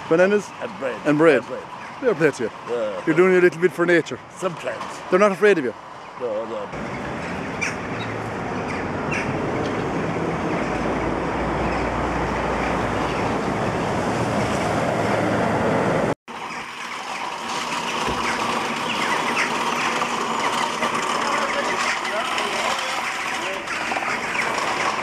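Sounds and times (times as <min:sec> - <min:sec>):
traffic on wet road: 0:00.0 - 0:16.2
gull calls: 0:06.9 - 0:09.4, 0:17.9 - 0:24.9.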